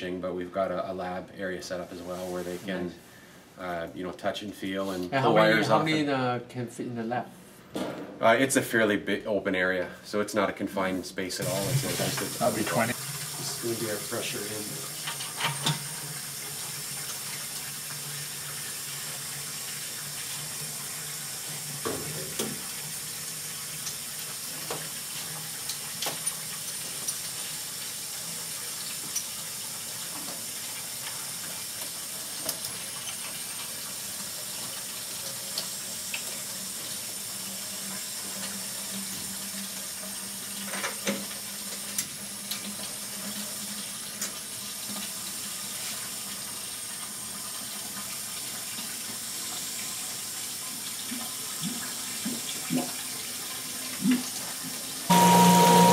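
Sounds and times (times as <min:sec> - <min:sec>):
knocks from hoses and fittings: 0:07.7 - 0:08.2
water rushing through hoses: 0:11.4 - 0:15.0
low hum: 0:55.1 - 0:55.9.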